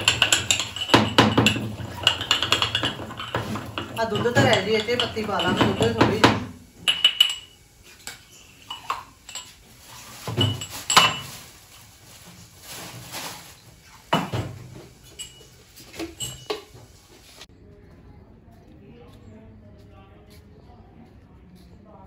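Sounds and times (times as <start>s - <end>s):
containers set down clinking: 0.0s - 11.6s, 12.7s - 16.9s.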